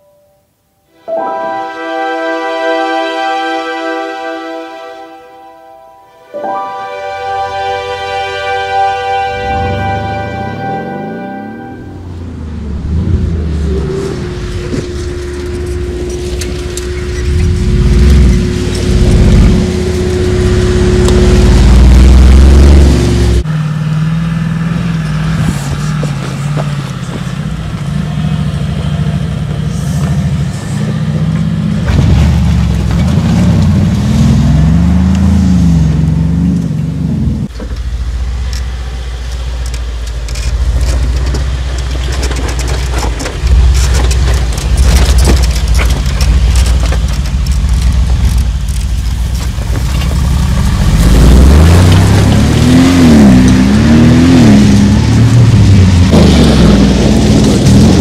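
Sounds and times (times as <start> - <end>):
vehicle engine driving off-road: 7.7 - 58.0
tyres crackling over stones: 25.0 - 28.1, 38.5 - 58.0.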